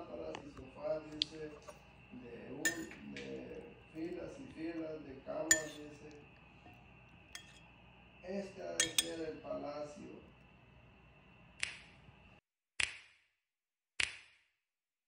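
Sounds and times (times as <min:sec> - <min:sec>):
utensils clinking on ceramic bowl: 0:02.6 - 0:04.1, 0:05.4 - 0:07.7, 0:08.8 - 0:09.3.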